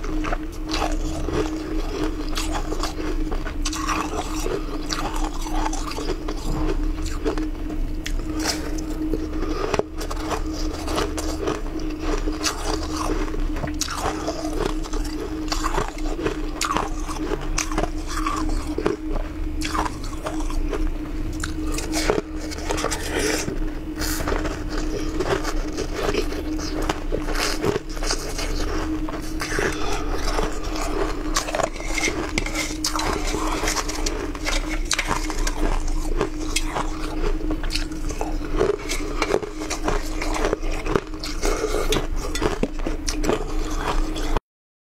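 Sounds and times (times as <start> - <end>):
ice being chewed: 0.0 - 44.4
low hum: 0.0 - 44.4
ice scraping metal strainer: 29.3 - 44.3.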